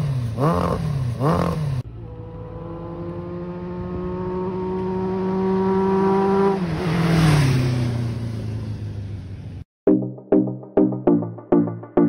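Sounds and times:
motorcycle riding past: 0:00.0 - 0:09.6.

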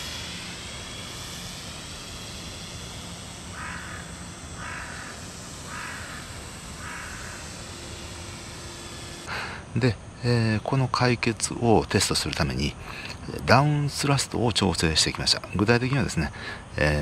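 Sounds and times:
steady background hiss: 0:00.0 - 0:17.0
crow cawing: 0:03.5 - 0:07.6.

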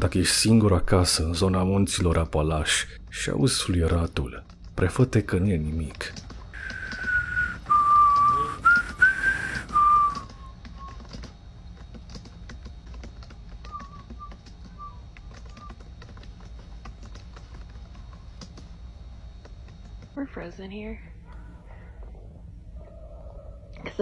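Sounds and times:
keyboard clicks: 0:04.2 - 0:20.2
hiss: 0:06.6 - 0:10.4
sustained whistle: 0:06.6 - 0:11.3, 0:13.5 - 0:15.9.

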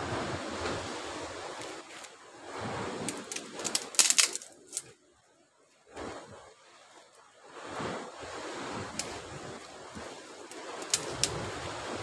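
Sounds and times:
waves washing on shore: 0:00.0 - 0:12.0
sharp clicks and cracks: 0:03.1 - 0:04.9, 0:08.9 - 0:09.2, 0:10.4 - 0:11.5.

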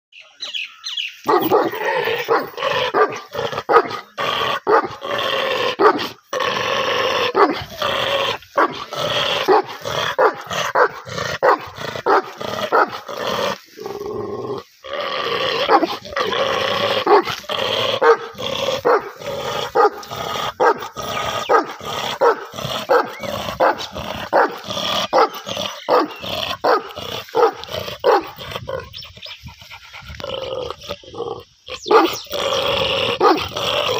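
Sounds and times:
large dog barking aggressively: 0:01.2 - 0:13.5, 0:15.5 - 0:30.8, 0:31.8 - 0:33.9.

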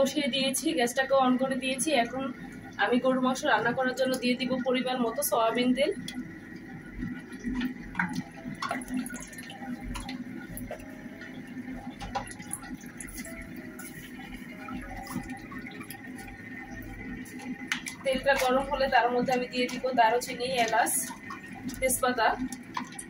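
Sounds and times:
oil pouring into frying pan: 0:07.5 - 0:10.8.

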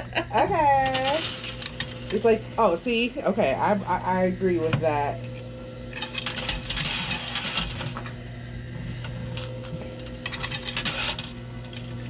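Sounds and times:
steady low hum: 0:00.0 - 0:12.0
coins clinking: 0:00.8 - 0:02.4, 0:05.3 - 0:08.1, 0:09.2 - 0:12.0.

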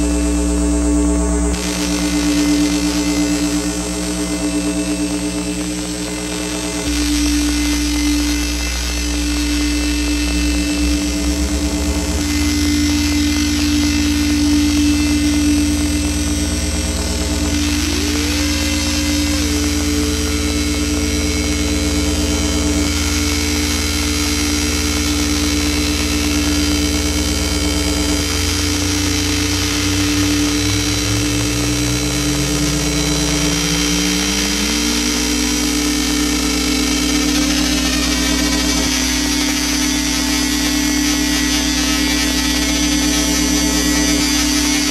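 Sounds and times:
synthesizer buzzing drone: 0:00.0 - 0:44.9
synthesizer tone gliding upward: 0:01.4 - 0:23.6.

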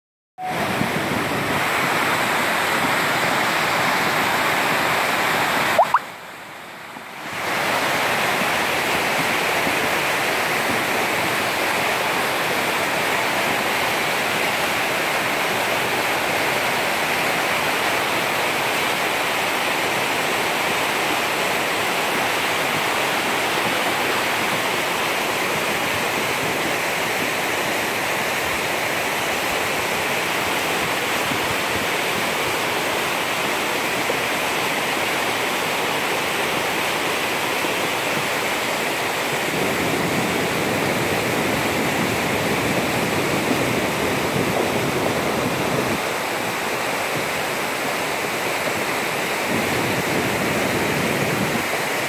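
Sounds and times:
rushing mountain stream: 0:00.4 - 0:52.0.

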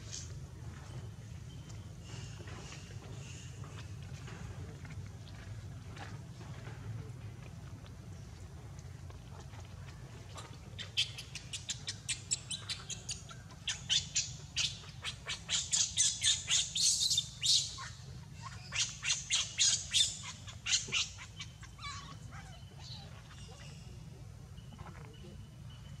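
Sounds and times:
infant monkey high-pitched squeals: 0:10.8 - 0:24.0.

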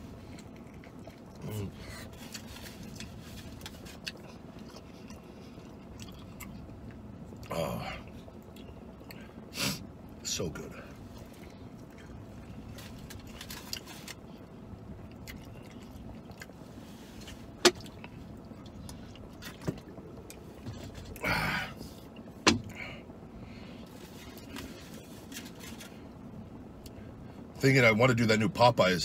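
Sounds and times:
low cabin hum: 0:00.0 - 0:29.0
person chewing: 0:00.1 - 0:09.4, 0:11.2 - 0:22.8.

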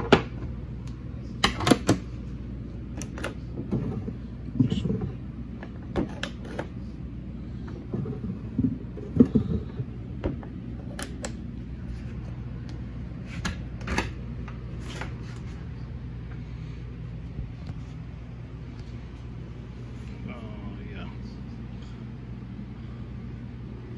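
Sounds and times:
steady low hum: 0:00.0 - 0:23.9.

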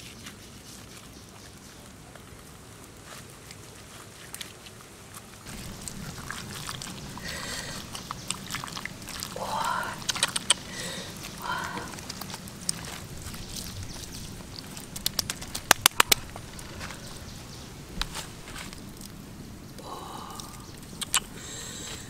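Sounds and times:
hands squishing wet paste into fish: 0:03.6 - 0:19.2.

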